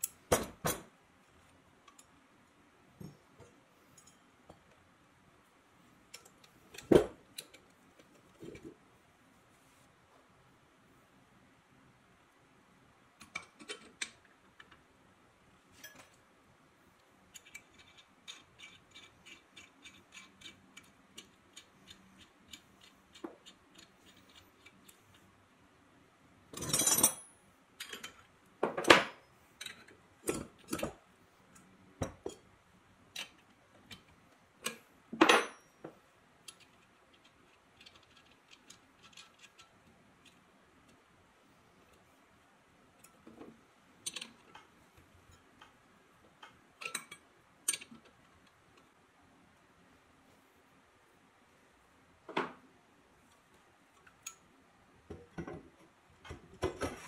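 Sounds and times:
metal parts clicking and clinking: 0:17.3 - 0:21.6, 0:36.5 - 0:40.4, 0:44.0 - 0:44.6, 0:46.4 - 0:48.2.

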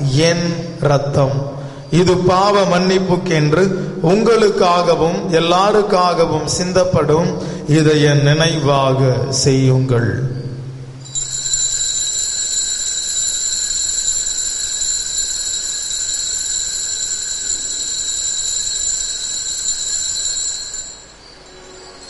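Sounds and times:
altar bell ringing: 0:11.0 - 0:22.0.

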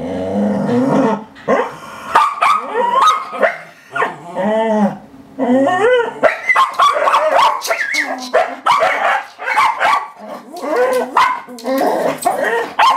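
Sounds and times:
dogs whining and yelping: 0:02.4 - 0:04.7, 0:05.4 - 0:12.9.

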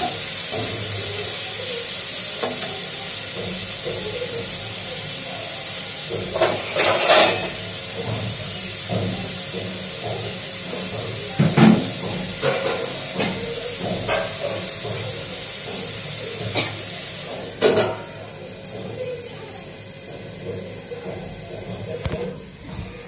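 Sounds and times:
steel pots and utensils clinking: 0:00.0 - 0:23.0.

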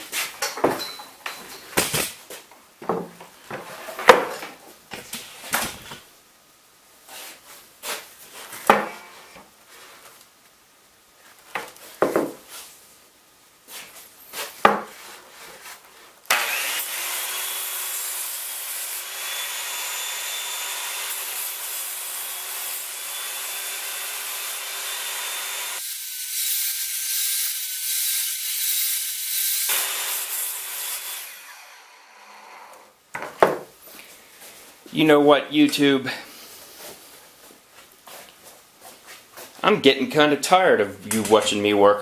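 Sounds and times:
wooden knocks: 0:02.8 - 0:04.4, 0:12.0 - 0:12.4, 0:14.6 - 0:14.9, 0:33.2 - 0:33.7
circular saw cutting wood: 0:16.3 - 0:33.0.

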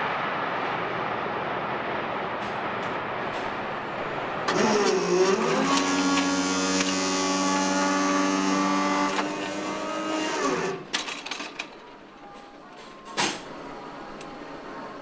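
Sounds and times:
barrier motor whining: 0:04.0 - 0:12.4.

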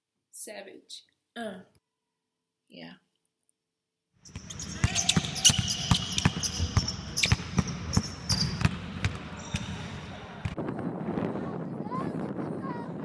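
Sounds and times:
sneakers squeaking: 0:04.2 - 0:10.6
basketball bouncing on wood floor: 0:04.3 - 0:10.6.

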